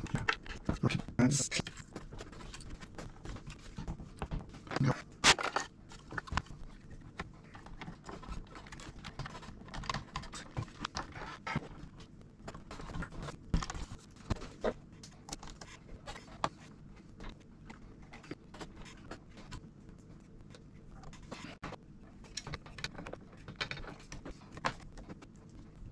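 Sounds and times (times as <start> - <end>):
metal and plastic parts clicking: 22.2 - 25.2.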